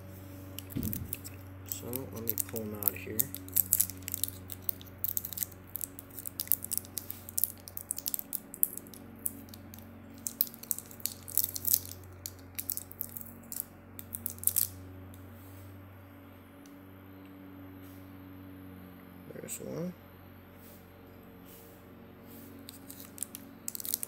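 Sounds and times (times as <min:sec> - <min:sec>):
steady low hum: 0:00.0 - 0:24.0
paper tape crackling: 0:00.5 - 0:14.8, 0:22.6 - 0:24.0.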